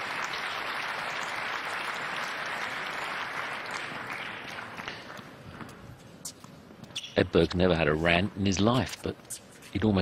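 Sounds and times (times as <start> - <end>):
audience applauding: 0.0 - 5.3.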